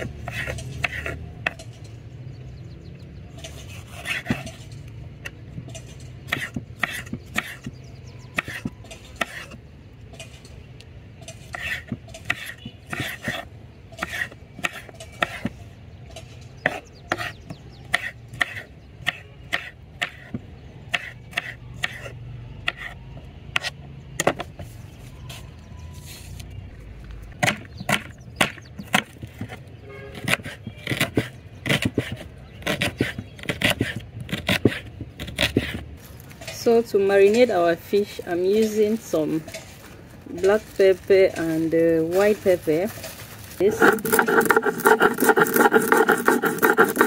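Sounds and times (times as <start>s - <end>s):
knife chopping on wooden board: 0.0s - 1.6s, 6.3s - 7.7s, 8.4s - 9.6s, 11.5s - 13.4s, 16.6s - 22.1s, 30.2s - 35.8s, 43.7s - 47.0s.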